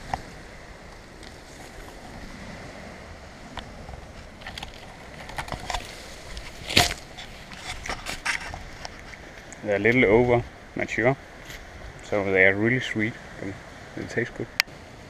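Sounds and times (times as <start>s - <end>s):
wind noise on microphone: 0.0s - 10.6s
light clicks and rustles: 3.5s - 10.0s.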